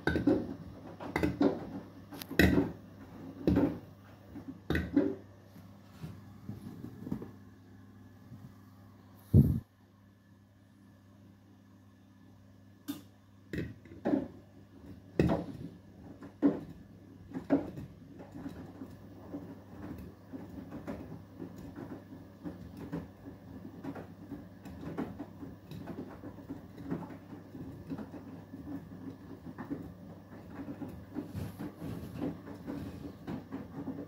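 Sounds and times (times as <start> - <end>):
washing machine drum thuds: 0.0 - 1.8
water sloshing in washing machine: 13.5 - 34.0.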